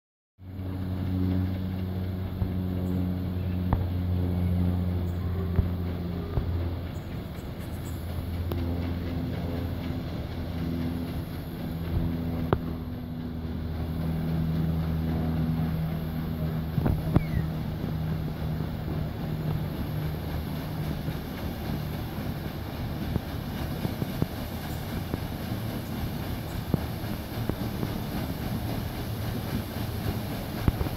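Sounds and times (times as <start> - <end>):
paddle steamer hum: 0.4 - 30.9
rushing water noise: 11.1 - 30.9.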